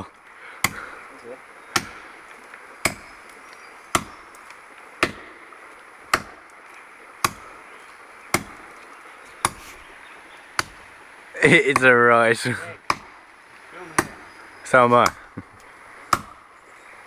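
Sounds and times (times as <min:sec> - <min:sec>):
axe chopping tree trunk: 0:00.6 - 0:00.9, 0:01.7 - 0:02.2, 0:02.8 - 0:05.4, 0:06.1 - 0:06.5, 0:07.2 - 0:07.6, 0:08.3 - 0:08.8, 0:09.4 - 0:09.7, 0:10.5 - 0:10.8, 0:12.8 - 0:13.2, 0:13.9 - 0:14.4, 0:15.0 - 0:16.4.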